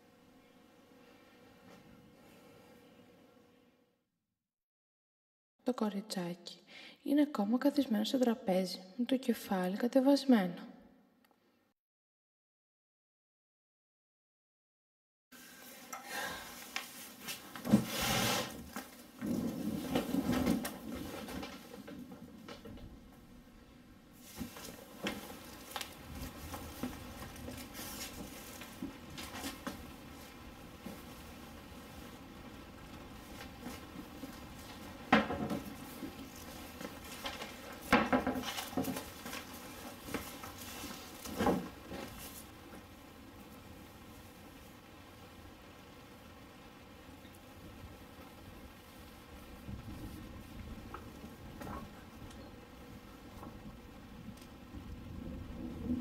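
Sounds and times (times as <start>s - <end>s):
clothing rustle: 15.4s - 22.6s, 24.2s - 44.8s.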